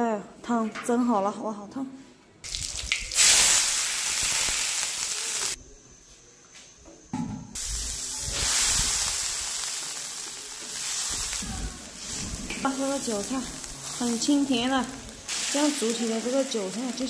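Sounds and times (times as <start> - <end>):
water boiling hard: 2.5 - 5.6, 7.6 - 17.0
water sizzling in hot wok: 2.5 - 5.6, 7.6 - 17.0.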